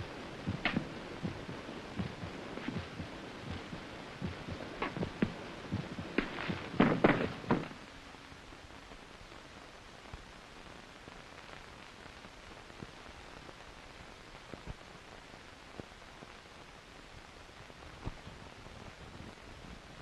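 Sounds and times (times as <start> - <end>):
film soundtrack hiss: 0.0 - 20.0.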